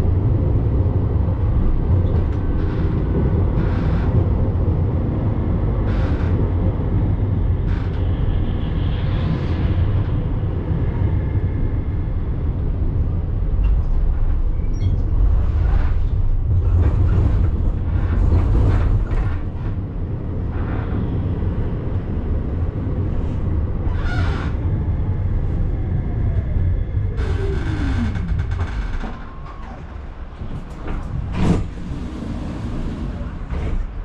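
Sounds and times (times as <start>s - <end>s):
tram rumbling on rails: 0.0s - 34.0s
tram motor whine: 18.5s - 33.8s
wheels clattering on track: 27.2s - 34.0s.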